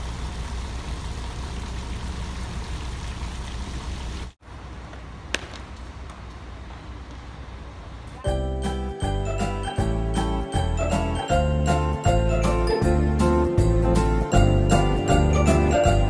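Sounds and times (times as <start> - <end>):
small fountain splashing: 0.0 - 4.4.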